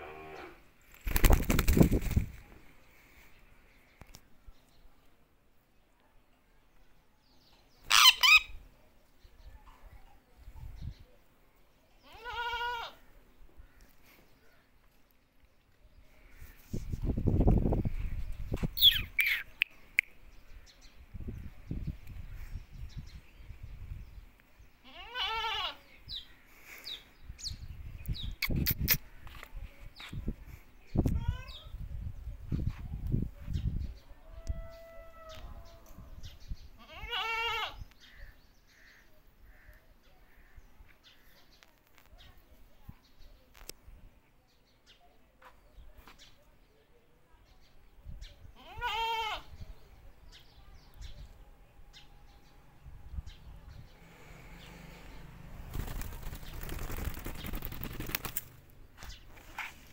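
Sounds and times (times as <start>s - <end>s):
wavering bleat: 24.8s - 25.8s, 36.8s - 37.8s, 48.6s - 49.5s.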